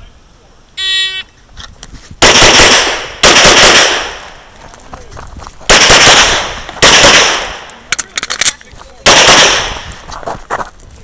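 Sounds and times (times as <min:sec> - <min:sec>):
pistol shots: 0:02.2 - 0:04.4, 0:05.7 - 0:07.8, 0:09.0 - 0:09.9.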